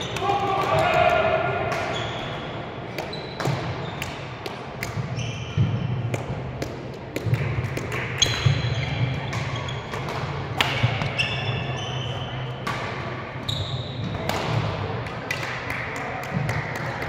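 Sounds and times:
court shoes squeaking: 0:01.5 - 0:06.4, 0:07.2 - 0:15.6.

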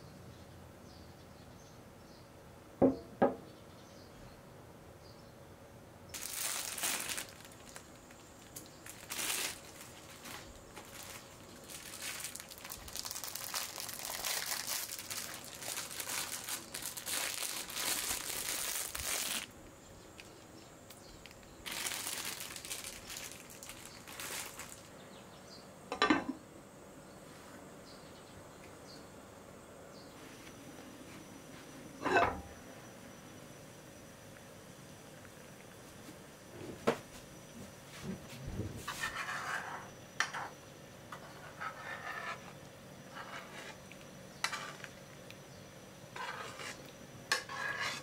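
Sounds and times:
plastic packaging crinkling: 0:06.2 - 0:19.6, 0:20.2 - 0:24.9.

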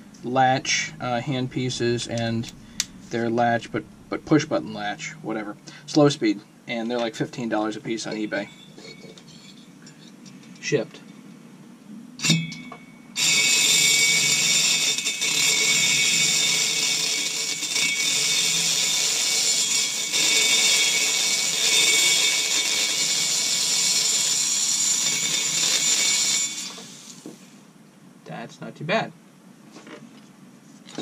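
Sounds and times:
rotary grinder high whine: 0:13.2 - 0:27.4.

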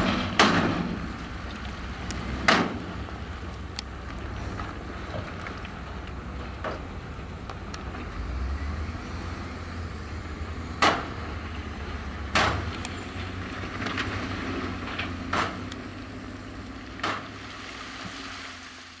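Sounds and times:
sharp loud knocks: 0:00.0 - 0:01.2, 0:02.3 - 0:02.9, 0:10.8 - 0:11.2
heavy machine engine running: 0:00.0 - 0:18.8.

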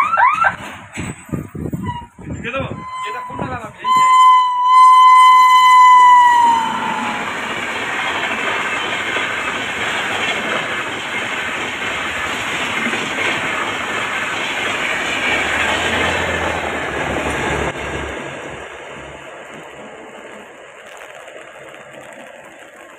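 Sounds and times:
train wheels on rails clickety-clack: 0:00.0 - 0:02.5, 0:05.4 - 0:22.9
locomotive horn: 0:01.8 - 0:07.6.

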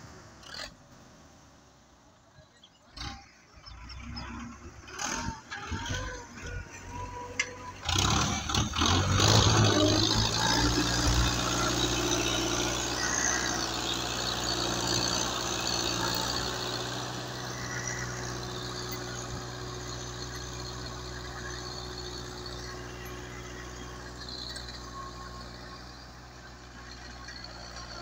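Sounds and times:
tractor diesel engine running: 0:01.7 - 0:28.0.

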